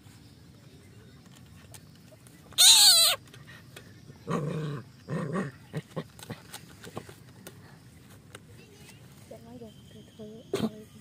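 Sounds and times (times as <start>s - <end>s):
puppy yelping: 2.6s - 3.2s
puppy growling: 4.2s - 6.5s.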